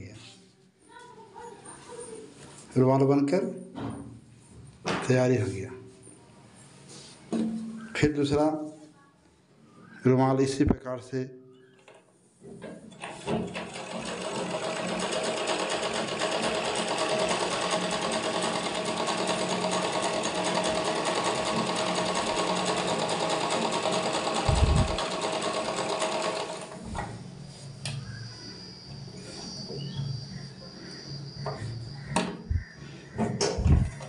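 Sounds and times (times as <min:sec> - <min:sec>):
sewing machine running: 0:13.0 - 0:26.8.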